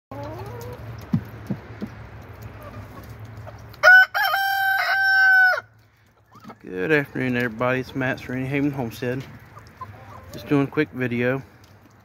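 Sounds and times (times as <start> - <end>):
chickens clucking: 0.1 - 12.0
rooster crowing: 3.8 - 5.7.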